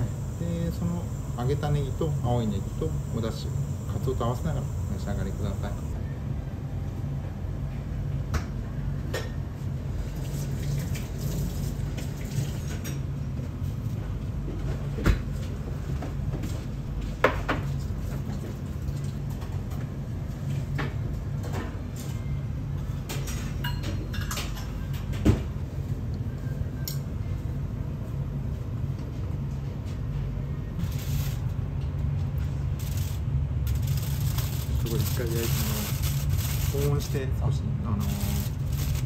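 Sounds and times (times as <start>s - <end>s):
steady low hum: 0.0s - 10.3s, 12.6s - 39.0s
clinks of dishes and utensils: 23.1s - 25.0s.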